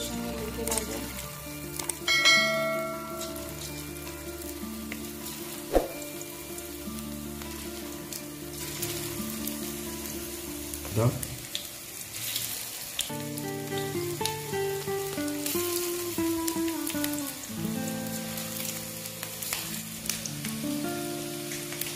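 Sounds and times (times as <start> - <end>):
chicken deep-frying in oil: 0.0 - 21.9
soft background music: 0.0 - 21.9.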